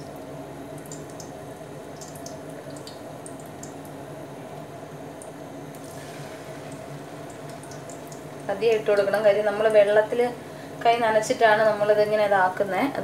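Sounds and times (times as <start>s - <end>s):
food sizzling in hot oil: 5.8s - 10.8s.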